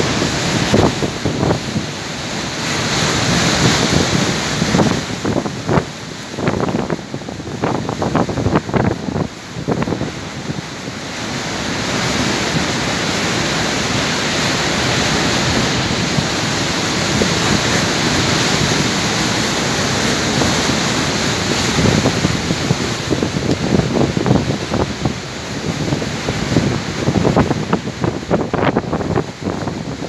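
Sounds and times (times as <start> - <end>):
wind buffeting microphone: 0.0 - 2.1, 2.8 - 11.1, 11.7 - 30.0
storm surf breaking on rocks: 0.0 - 30.0.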